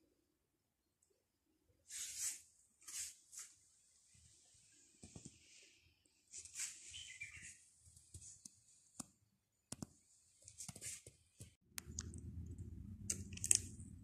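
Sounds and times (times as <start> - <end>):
low steady hum: 11.7 - 14.0.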